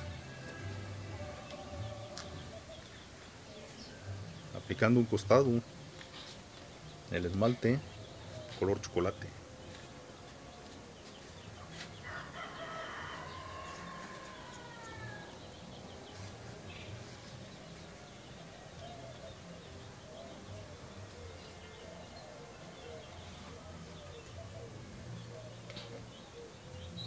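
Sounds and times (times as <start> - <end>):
rooster crowing: 12.0 - 15.5.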